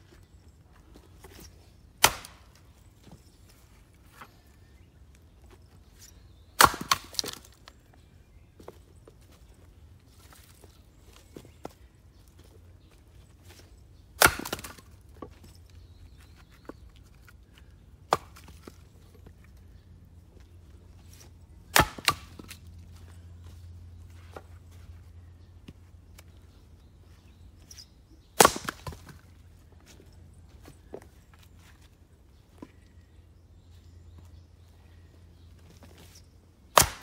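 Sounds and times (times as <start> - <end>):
axe chopping firewood: 1.3 - 2.6, 6.6 - 7.5, 14.2 - 15.3, 18.0 - 18.8, 21.7 - 22.6, 28.4 - 29.2, 36.7 - 37.0.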